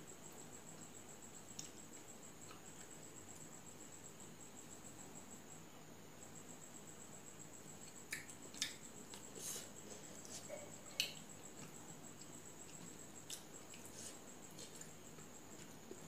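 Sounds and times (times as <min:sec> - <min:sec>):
insect trill: 0:00.0 - 0:16.0
soft chewing: 0:00.7 - 0:03.5, 0:07.8 - 0:16.0.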